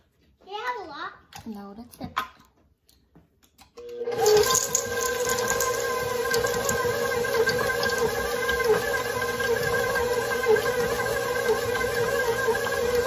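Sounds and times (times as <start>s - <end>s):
stand mixer motor whine: 3.8s - 13.0s.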